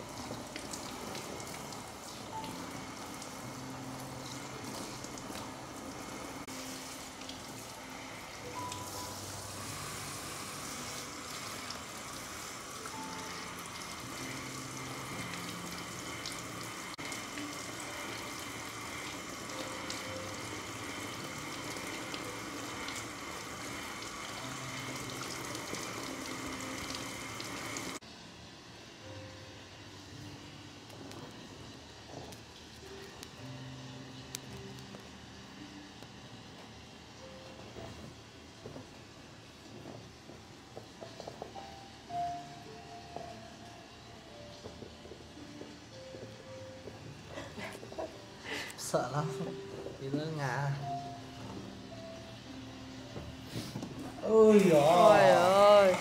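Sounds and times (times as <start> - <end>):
water running from a tap: 0.0 - 28.0, 54.2 - 56.0
soft background music: 0.0 - 56.0.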